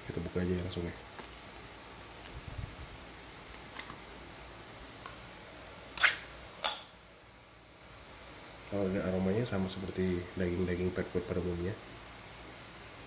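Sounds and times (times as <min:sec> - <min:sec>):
can ring-pull tab clicks: 0:06.0 - 0:06.9.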